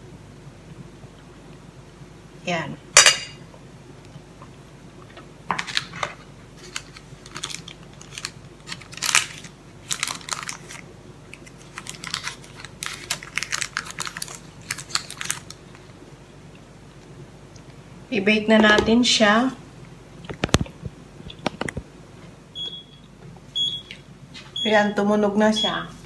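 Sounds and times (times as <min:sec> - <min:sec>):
baking paper crinkling: 0:05.5 - 0:16.0.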